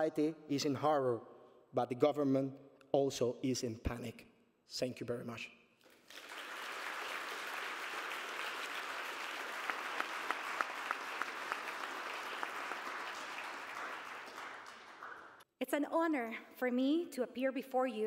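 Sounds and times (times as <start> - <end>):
audience applauding: 5.9 - 15.4.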